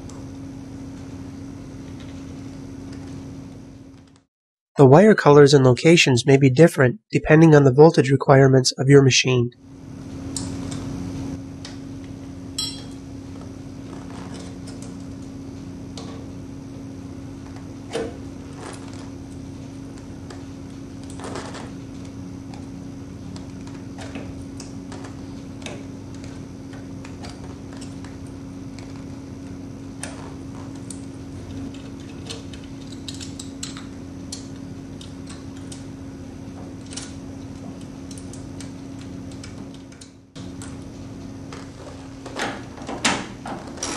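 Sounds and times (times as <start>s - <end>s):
steady low hum: 0.0s - 43.9s
metallic clicks and rattles of wiring: 30.8s - 35.9s, 36.8s - 40.8s.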